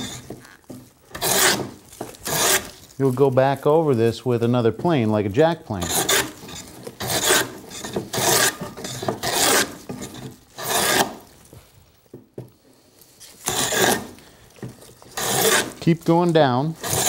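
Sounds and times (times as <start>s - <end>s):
hand plane rasping on wood: 0.0s - 2.8s, 5.8s - 11.3s, 13.4s - 17.0s.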